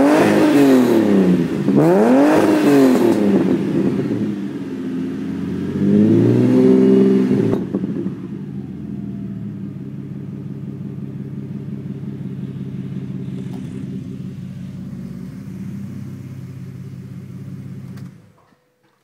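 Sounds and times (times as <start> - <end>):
car engine idling: 7.7 - 18.4.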